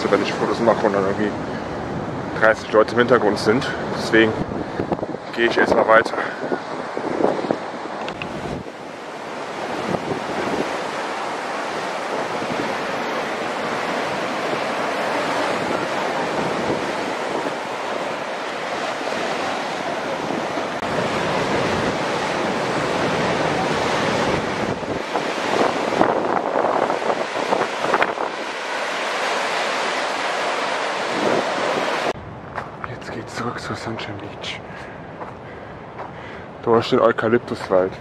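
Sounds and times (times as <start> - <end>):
surf breaking on rocks: 4.0 - 32.8.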